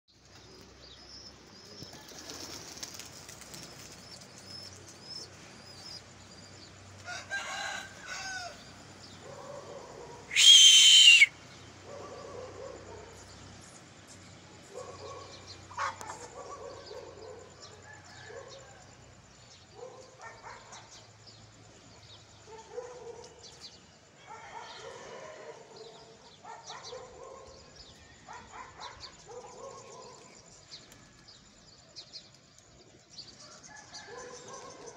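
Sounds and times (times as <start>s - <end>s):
pigeons calling: 0.2s - 13.3s
wings flapping: 1.8s - 4.5s.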